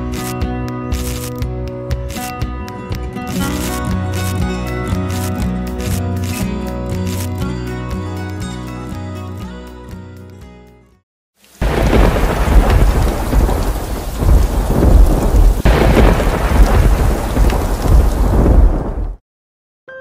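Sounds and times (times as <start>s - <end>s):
heavy rain: 11.4s - 19.2s
rolling thunder: 11.6s - 19.2s
thunder crack: 11.6s - 19.2s.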